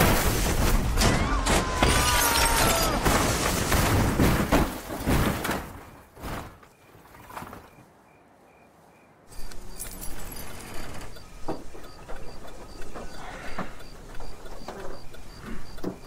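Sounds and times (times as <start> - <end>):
glass shattering: 0.0 - 5.7
car crash impacts: 0.0 - 6.6
metal crunching: 0.0 - 6.7.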